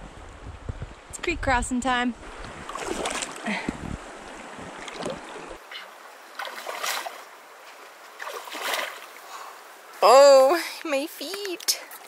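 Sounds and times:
stream rushing: 2.2 - 10.8
feet splashing through water: 2.4 - 3.6, 4.3 - 5.6, 6.3 - 9.3.

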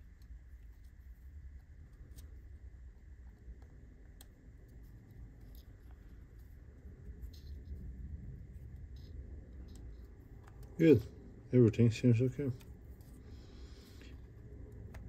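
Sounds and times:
plastic parts clicking and rubbing: 0.0 - 11.1
low steady rumble: 0.0 - 15.0.

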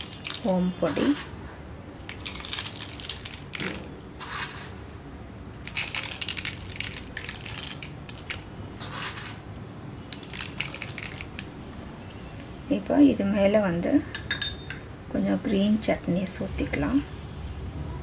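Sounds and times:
fried noodles crumbled by hand: 0.0 - 11.6.

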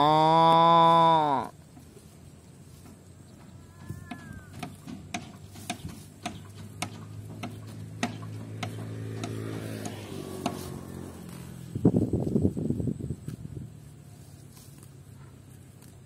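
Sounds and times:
cow tearing stalks: 3.9 - 12.6, 13.2 - 16.0.

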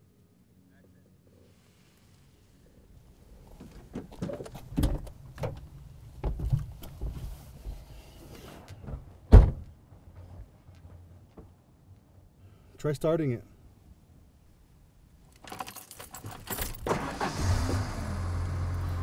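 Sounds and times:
knocks and clunks in truck cab: 8.8 - 9.7
heavy thunk: 8.9 - 9.6.

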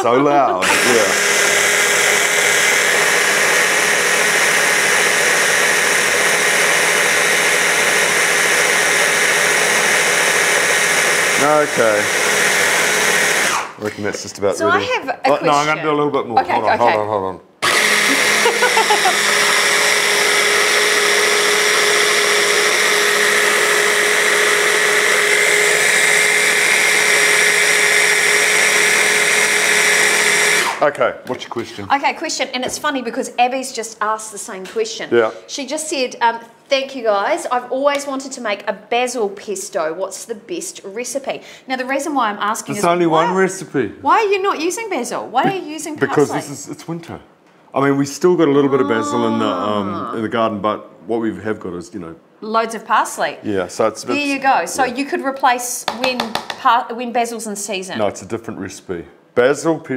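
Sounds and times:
stick blender running: 0.0 - 15.8, 17.6 - 31.0, 48.5 - 50.2.

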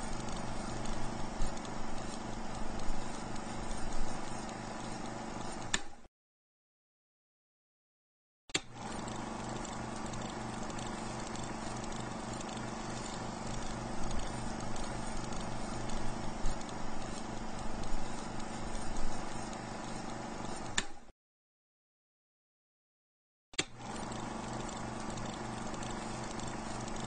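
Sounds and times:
rhythmic mechanical clatter: 0.0 - 5.1, 8.8 - 20.6, 23.8 - 27.0.

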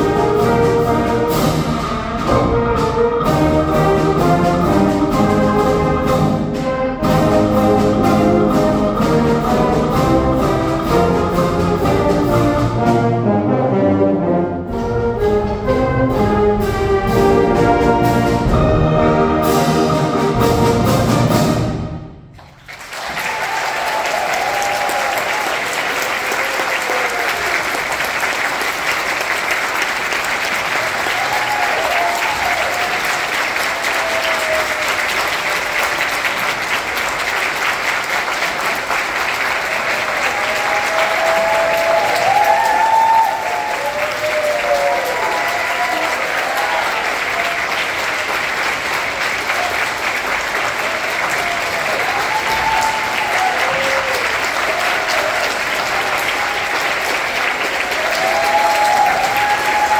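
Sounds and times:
audience applauding: 22.3 - 59.9
people cheering: 22.4 - 59.9.

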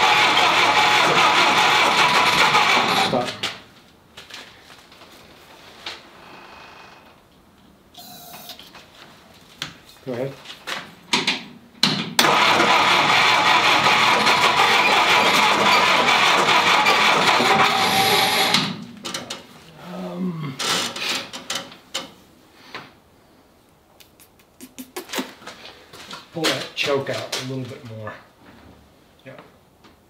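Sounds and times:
engine cranking on starter: 0.0 - 3.6, 12.2 - 18.8.

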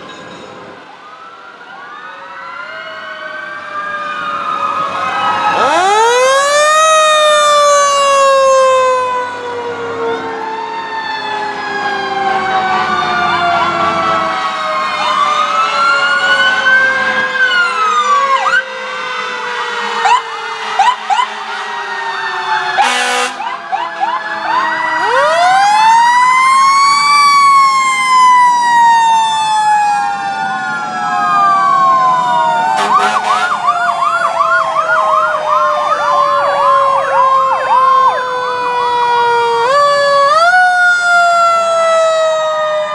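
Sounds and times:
fire truck sirens: 0.0 - 42.9
loud horn blast: 19.0 - 22.2, 22.8 - 24.7, 32.7 - 33.7.

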